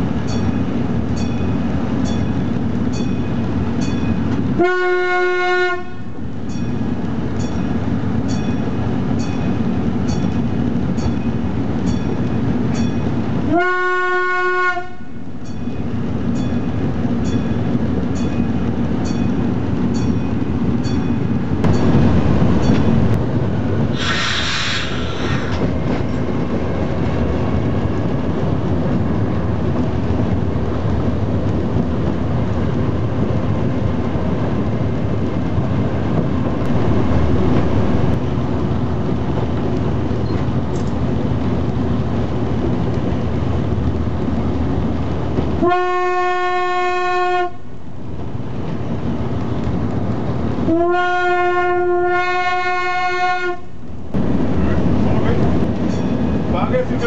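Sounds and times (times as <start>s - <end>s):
railcar engine running: 0.0s - 57.0s
railcar horn blast: 4.5s - 6.1s, 13.4s - 15.2s, 45.6s - 47.6s, 50.6s - 53.7s
wheel clatter on track: 15.5s - 45.6s.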